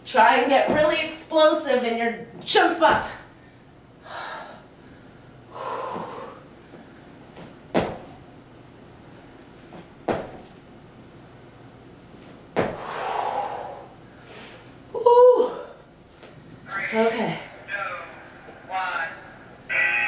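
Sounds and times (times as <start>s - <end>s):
landing thumps on exercise mat: 0.6s - 1.0s, 7.4s - 8.2s, 9.8s - 10.5s, 12.5s - 12.9s
heavy breathing: 3.4s - 7.1s, 12.8s - 14.7s.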